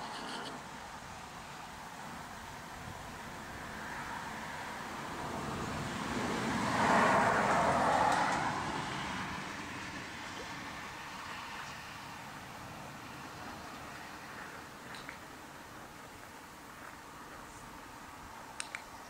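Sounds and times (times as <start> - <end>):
car passing by: 3.4 - 14.7.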